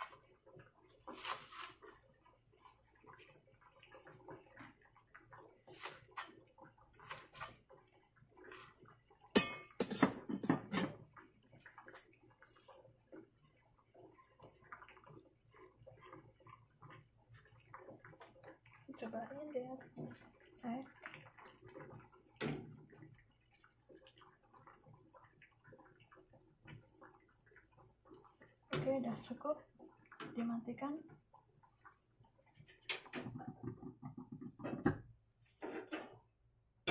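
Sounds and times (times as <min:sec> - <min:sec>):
water bubbling at a boil: 0:00.0 - 0:36.9
dishes and utensils clattering: 0:09.4 - 0:11.0, 0:35.6 - 0:36.2.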